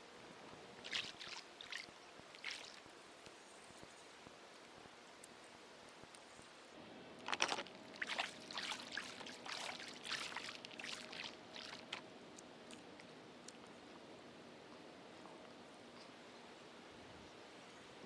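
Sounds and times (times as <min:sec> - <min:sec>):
water splashing and trickling: 0:00.8 - 0:02.9, 0:07.2 - 0:13.1.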